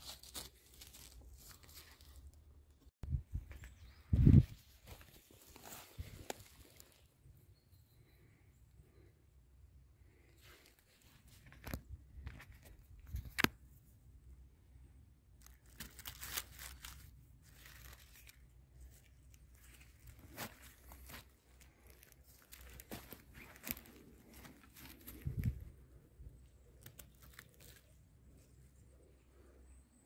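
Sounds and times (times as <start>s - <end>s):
rustling of dry forest litter: 0.0s - 9.2s, 9.9s - 29.7s
twigs snapping: 11.4s - 13.6s, 15.4s - 18.4s, 19.0s - 25.7s, 26.5s - 28.0s.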